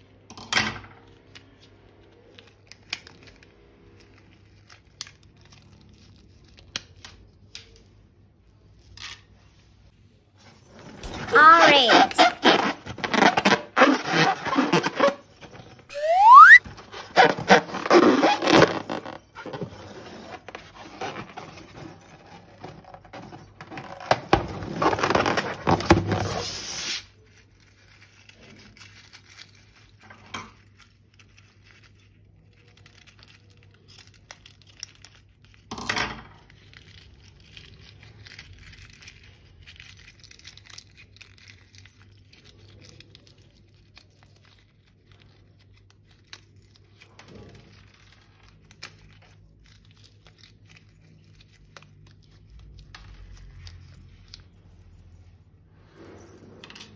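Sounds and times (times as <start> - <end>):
slime rustling: 8.6 - 30.0.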